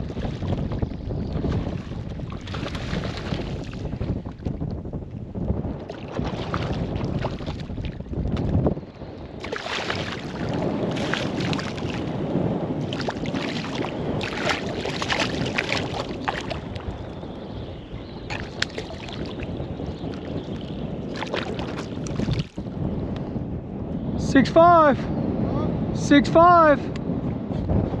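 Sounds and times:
wind on microphone: 0:00.0 - 0:28.0
fish splashing in water: 0:01.5 - 0:03.8, 0:09.4 - 0:12.1, 0:12.8 - 0:16.8, 0:18.3 - 0:19.5, 0:21.1 - 0:22.6.

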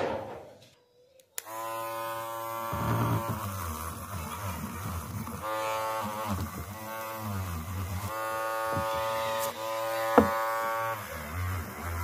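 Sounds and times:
rotary tool buzzing whine: 0:01.4 - 0:12.0.

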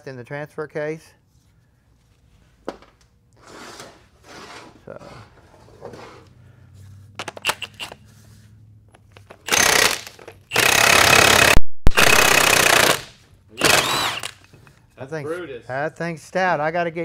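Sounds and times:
impact wrench hammering: 0:09.4 - 0:14.5.

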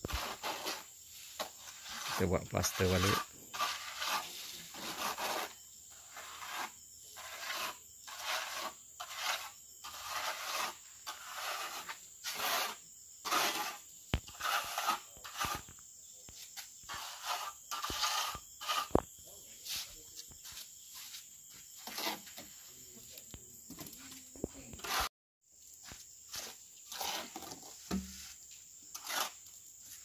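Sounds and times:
trowel scraping wet plaster: 0:00.0 - 0:15.7, 0:16.9 - 0:19.0, 0:21.8 - 0:22.5, 0:24.7 - 0:25.1, 0:26.4 - 0:29.5.

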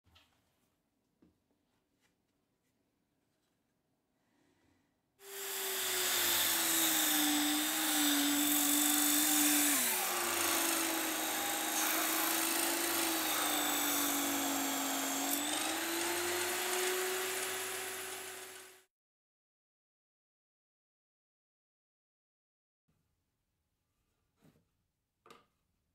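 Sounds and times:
electric drill motor whine: 0:05.2 - 0:18.8.

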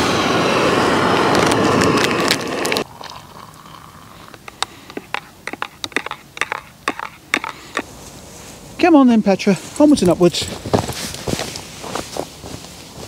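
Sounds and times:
gas stove burner roaring: 0:00.0 - 0:02.9.

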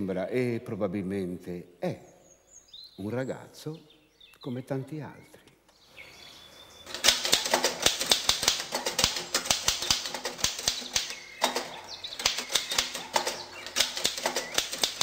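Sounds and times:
typewriter keys clacking: 0:06.9 - 0:15.0.

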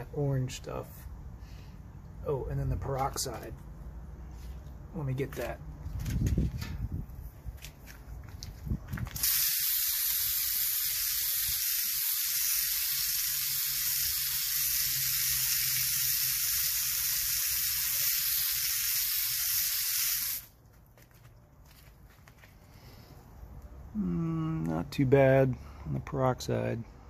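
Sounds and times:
hose nozzle spraying water: 0:09.2 - 0:20.5.

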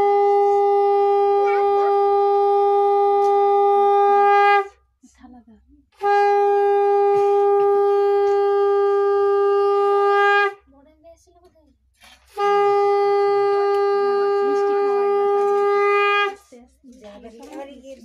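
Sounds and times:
conch shell blasts: 0:00.0 - 0:04.8, 0:06.0 - 0:10.7, 0:12.0 - 0:16.5.

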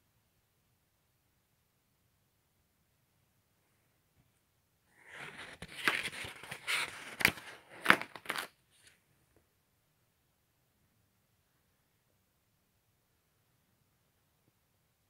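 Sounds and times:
paper pages rustling and crinkling: 0:05.0 - 0:09.0.

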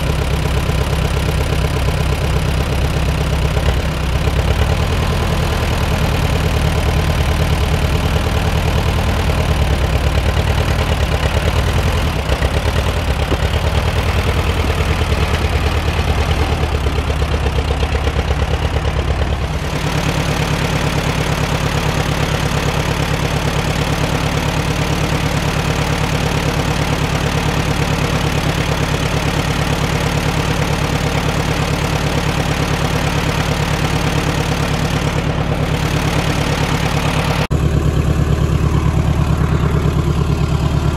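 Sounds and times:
tractor engine idling: 0:00.0 - 0:40.9.

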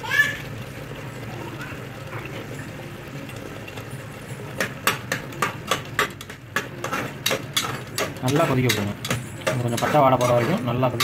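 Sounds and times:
metal spatula scraping a pot: 0:05.4 - 0:11.0.

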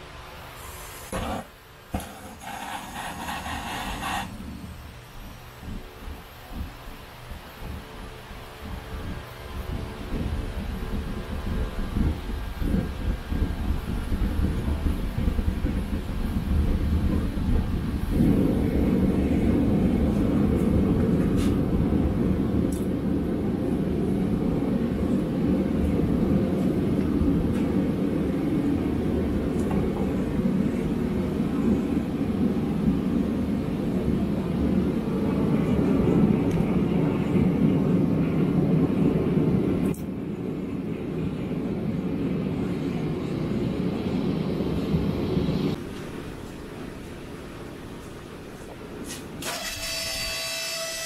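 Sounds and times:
forge burner flame rushing: 0:00.5 - 0:06.8.

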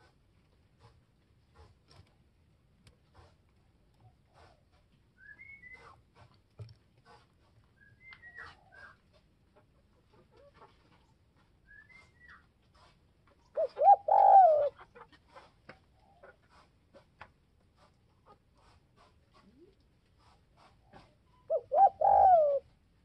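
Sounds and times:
dove cooing: 0:13.5 - 0:14.9, 0:21.4 - 0:22.7.

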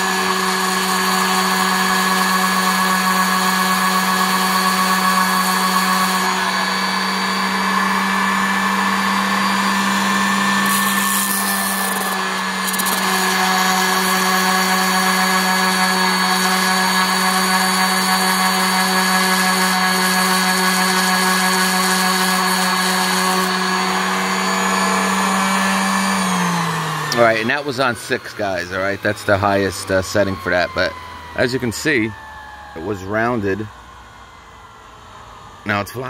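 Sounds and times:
orbital sander sanding wood: 0:00.0 - 0:33.7.

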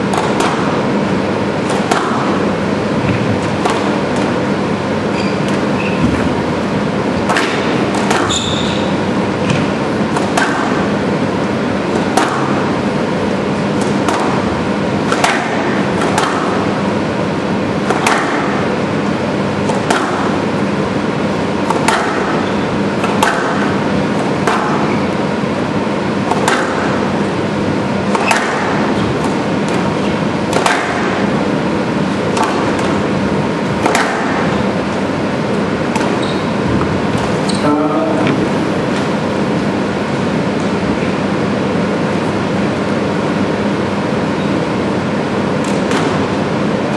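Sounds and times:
squash ball cracks: 0:00.1 - 0:00.9, 0:01.6 - 0:02.5, 0:03.1 - 0:04.4, 0:07.2 - 0:11.0, 0:11.8 - 0:12.8, 0:13.7 - 0:16.8, 0:17.8 - 0:19.0, 0:19.6 - 0:20.6, 0:21.4 - 0:25.3, 0:26.0 - 0:27.3, 0:28.0 - 0:36.2, 0:45.6 - 0:46.5.

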